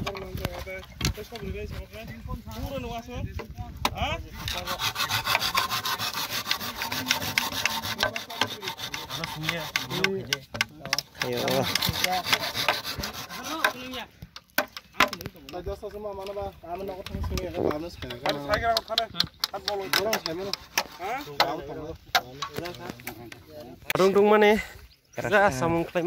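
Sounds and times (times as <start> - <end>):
hand saw cutting bamboo: 4.2 - 15.3, 17.0 - 23.4.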